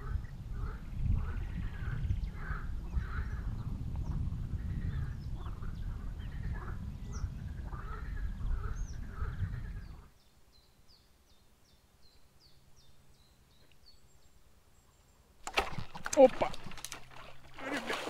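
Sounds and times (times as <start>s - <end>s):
wind rumble on microphone: 0.0s - 10.2s.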